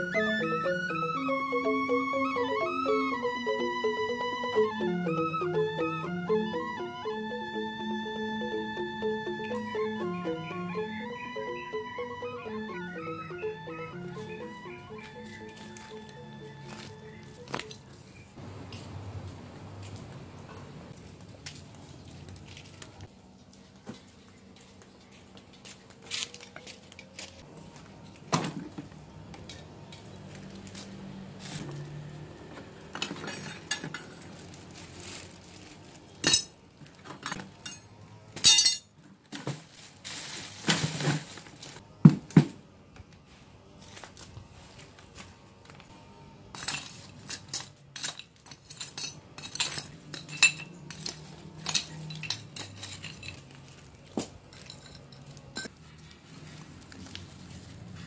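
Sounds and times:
metal tools clinking in bucket: 32.9s - 39.0s, 46.5s - 55.8s.

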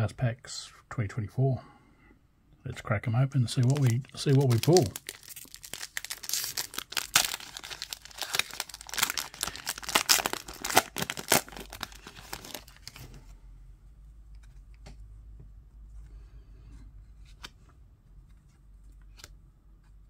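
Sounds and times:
wrapper tearing and crackling: 3.6s - 13.0s.

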